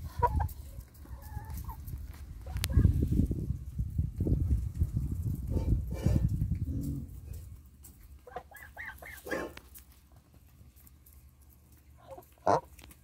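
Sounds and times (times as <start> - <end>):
geese calling: 8.2 - 9.5, 12.0 - 12.8.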